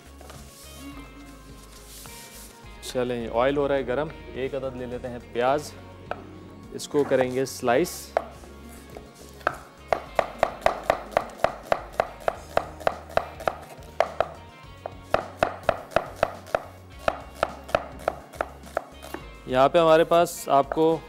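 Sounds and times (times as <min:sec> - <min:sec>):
knife slicing onion on board: 0:09.5 - 0:14.4, 0:15.1 - 0:19.3.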